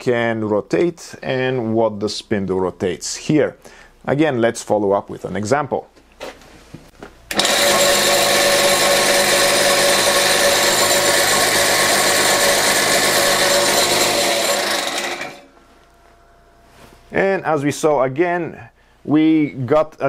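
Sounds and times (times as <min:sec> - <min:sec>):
drill motor whine: 0:07.3 - 0:15.5.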